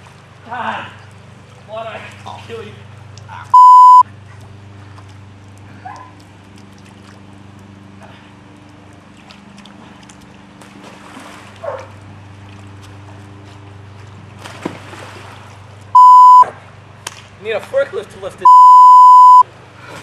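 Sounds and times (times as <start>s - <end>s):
steady low hum: 2.7s - 17.4s.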